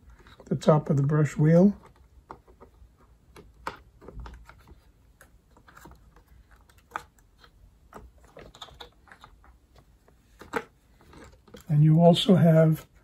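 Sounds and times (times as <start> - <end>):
plastic parts clicking: 1.8 - 9.6.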